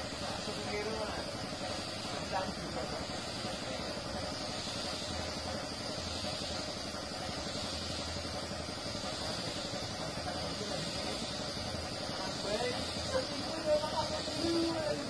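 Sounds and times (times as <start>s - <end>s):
spray gun hissing: 0.0s - 15.0s.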